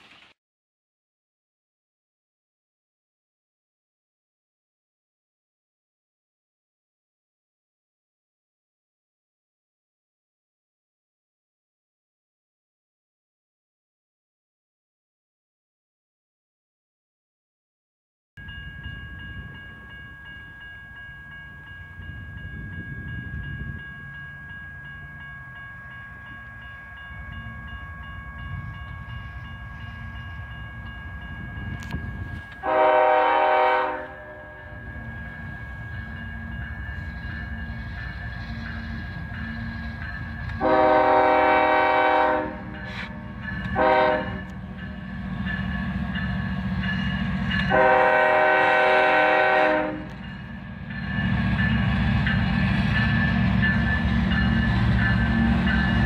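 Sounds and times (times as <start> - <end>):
locomotive air horn blasts: 32.6 - 34.8, 40.6 - 44.6, 47.7 - 50.2.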